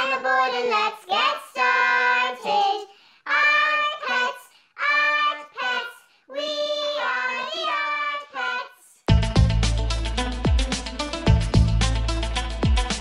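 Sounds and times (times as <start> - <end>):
person singing theme song: 0.0 - 8.6
music track: 9.1 - 13.0.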